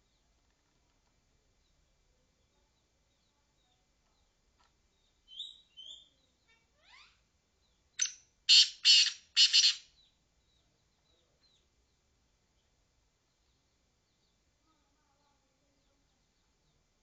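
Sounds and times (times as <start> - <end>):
bird calling: 8.0 - 10.1.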